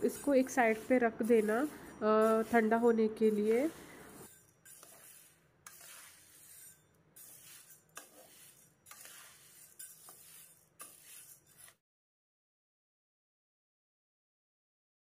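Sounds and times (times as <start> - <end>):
dry beans rattling in pan: 7.2 - 11.7.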